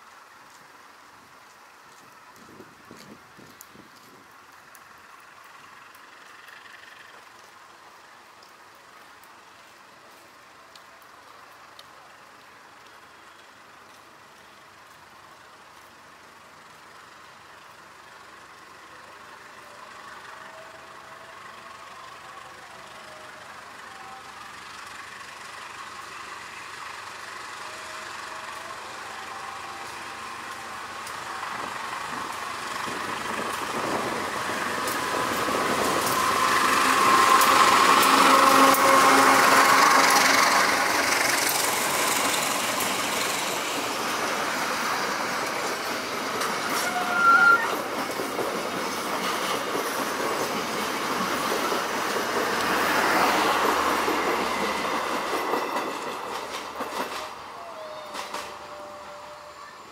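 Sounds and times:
locomotive engine running: 0:00.2 - 0:59.9
wheels clattering on rails: 0:24.5 - 0:59.9.

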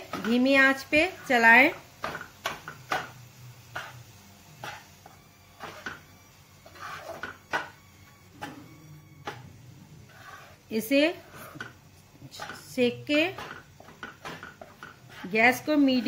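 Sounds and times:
spatula scraping a pan: 0:03.7 - 0:04.0, 0:04.6 - 0:07.8, 0:10.0 - 0:16.0.

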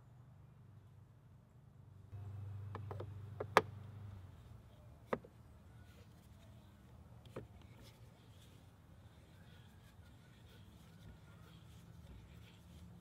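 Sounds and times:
clicks and taps of handling tools: 0:02.7 - 0:03.7.

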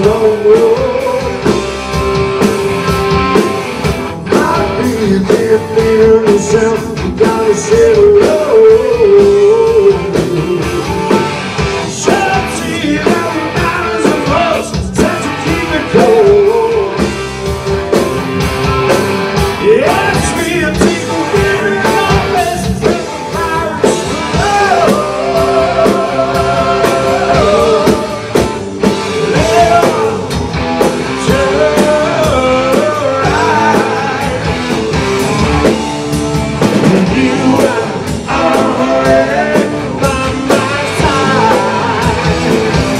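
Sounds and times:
man singing: 0:00.0 - 0:01.6, 0:04.3 - 0:17.1, 0:19.6 - 0:30.4, 0:31.1 - 0:34.7, 0:36.8 - 0:42.6
bass guitar: 0:00.0 - 0:42.9
drum kit: 0:00.0 - 0:42.9
electric guitars: 0:00.0 - 0:42.9.

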